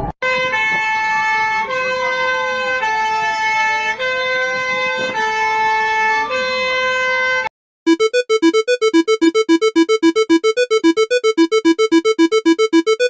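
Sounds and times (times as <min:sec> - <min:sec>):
alternating high alarm tones: 0:07.9 - 0:13.0.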